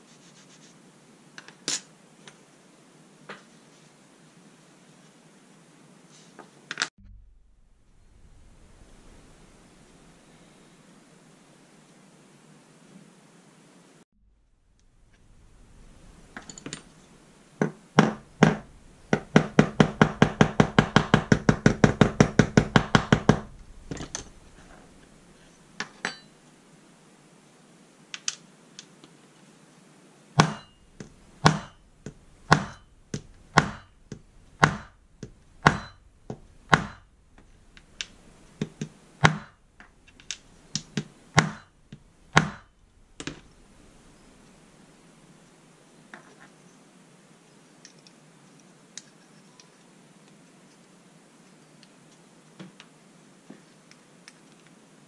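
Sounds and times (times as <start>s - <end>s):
small hammer knocks: 30.4s - 37.1s, 40.3s - 43.4s
metal tapping on steel: 30.4s - 39.6s, 40.2s - 43.4s.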